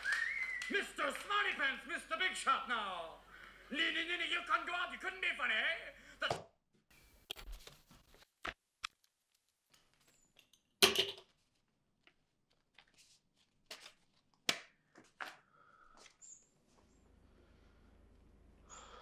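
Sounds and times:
paper cards clicking and rustling: 12.1 - 15.4.

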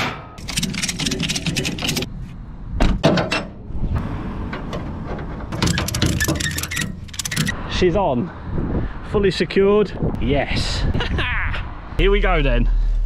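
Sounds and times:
ratchet strap clicking: 5.7 - 7.6.

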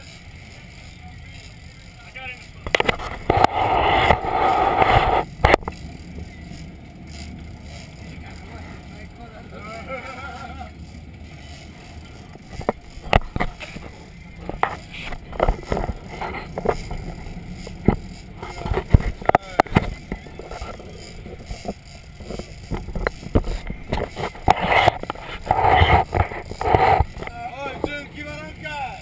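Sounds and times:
boat engine rumble: 0.0 - 29.0
voices: 0.0 - 29.0
wind on microphone: 2.6 - 8.0, 11.0 - 28.2.

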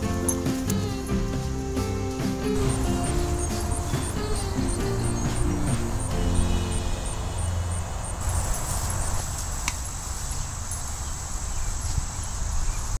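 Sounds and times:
low rumble: 0.0 - 10.3
insects trilling: 0.0 - 13.0.

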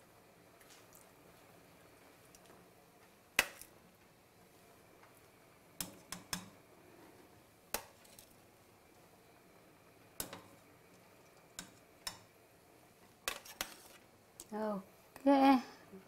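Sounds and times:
metal tongs clicking on a pot: 11.6 - 12.3.

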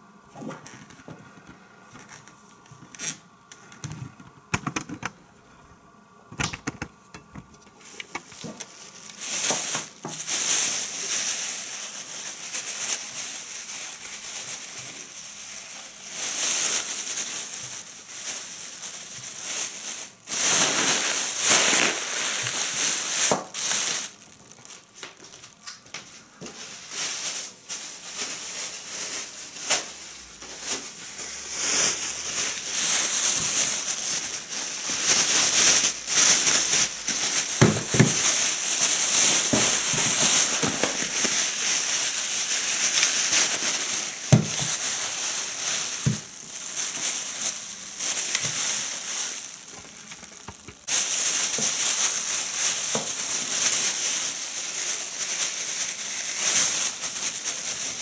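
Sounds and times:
plastic bag crinkling: 0.4 - 5.2, 6.4 - 58.0.

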